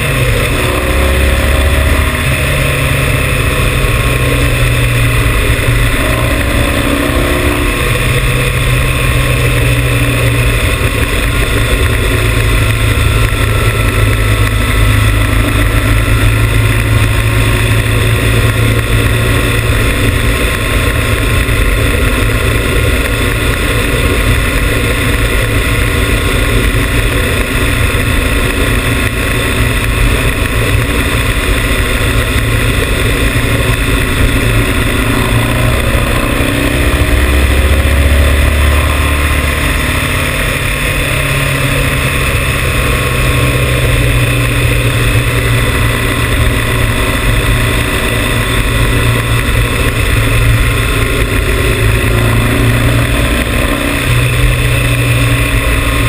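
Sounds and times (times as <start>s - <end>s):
motorcycle engine running: 0.0s - 56.0s
wind rush over microphone: 0.0s - 56.0s.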